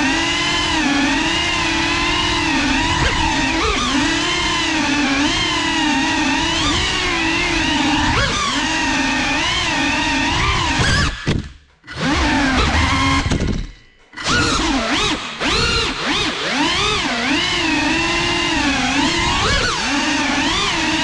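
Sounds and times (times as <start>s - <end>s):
drone motors whining: 0.0s - 21.0s.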